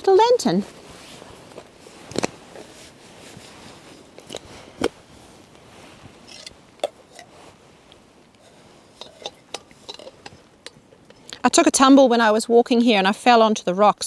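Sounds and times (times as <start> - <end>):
gas lantern clicks and knocks: 8.4 - 11.2.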